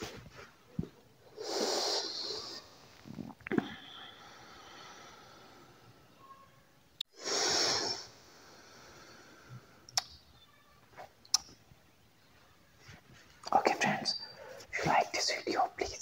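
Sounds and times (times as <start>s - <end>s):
man blowing out smoke: 1.3s - 5.6s, 7.1s - 9.8s
mouth clicks: 9.9s - 10.4s, 11.0s - 11.6s.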